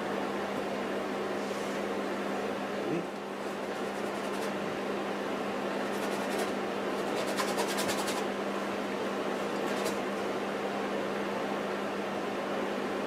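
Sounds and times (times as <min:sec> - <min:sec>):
steady low hum: 0:00.0 - 0:13.0
paintbrush scrubbing canvas: 0:03.4 - 0:04.6, 0:05.8 - 0:08.2.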